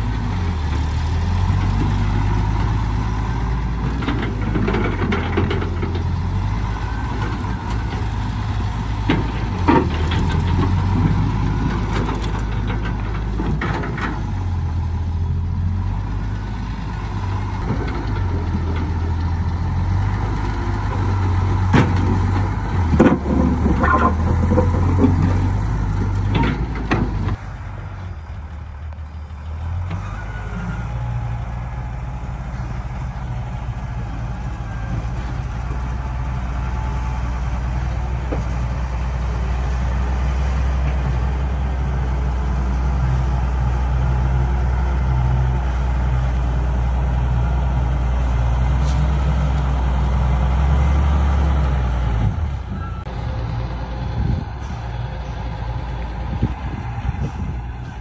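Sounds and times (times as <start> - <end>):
excavator diesel engine running: 0.0 - 58.0
sharp knocks and scrapes: 20.9 - 27.4.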